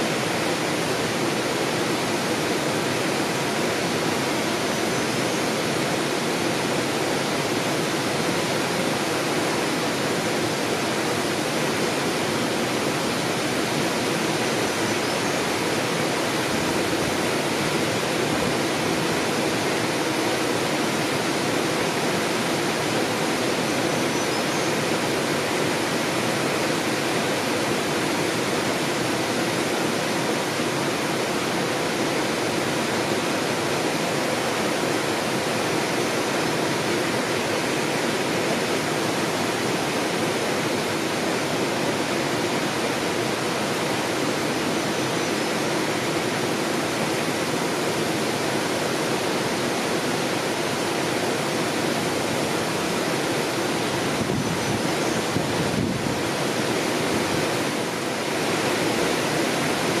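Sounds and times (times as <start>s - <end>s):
flowing water rushing: 0.0s - 60.0s.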